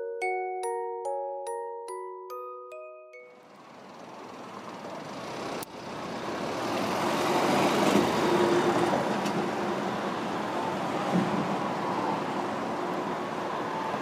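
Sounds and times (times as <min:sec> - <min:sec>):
street traffic rumble: 0:03.3 - 0:14.0.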